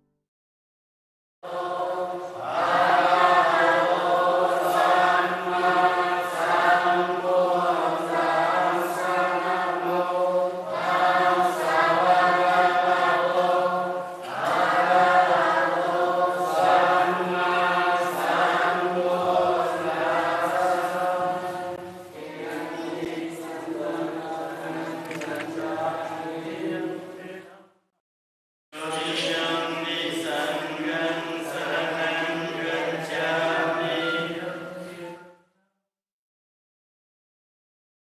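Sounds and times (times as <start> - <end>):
monks chanting in low drone: 28.8 - 35.1.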